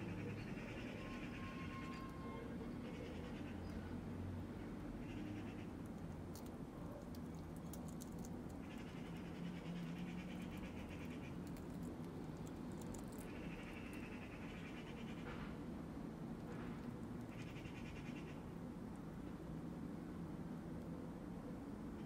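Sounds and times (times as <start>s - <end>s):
teeth and claws on eggshell: 11.2s - 13.4s.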